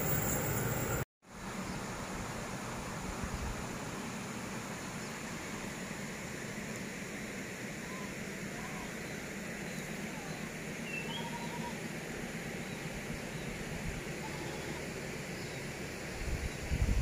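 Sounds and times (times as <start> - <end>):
steady background hiss: 0.0 - 16.4
faint bird chirps: 7.8 - 11.8.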